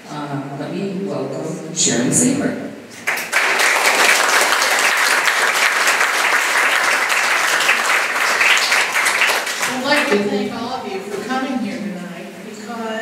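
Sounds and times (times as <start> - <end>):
audience applauding: 3.0 - 10.2.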